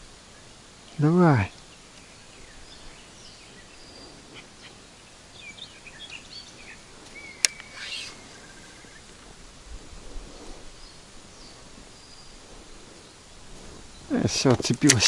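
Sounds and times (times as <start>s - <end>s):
small birds chirping: 0.0s - 9.5s, 10.2s - 15.0s
brief hiss: 7.4s - 8.4s
sharp click: 14.5s - 15.0s.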